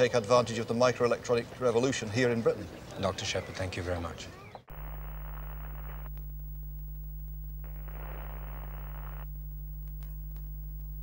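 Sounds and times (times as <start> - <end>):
low electrical hum: 4.7 - 11.0
short crackle: 4.7 - 11.0
static hiss: 4.7 - 11.0.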